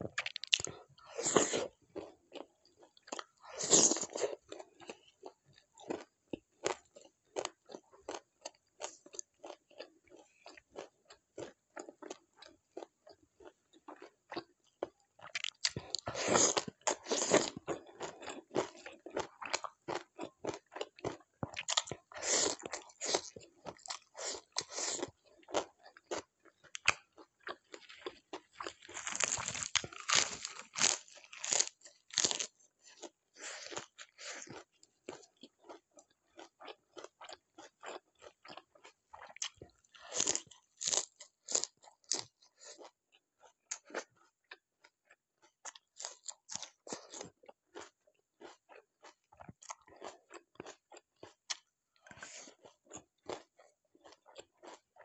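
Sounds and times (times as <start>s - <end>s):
person chewing food: 0.0s - 55.0s
crunching bites: 0.2s - 0.8s, 28.1s - 32.5s.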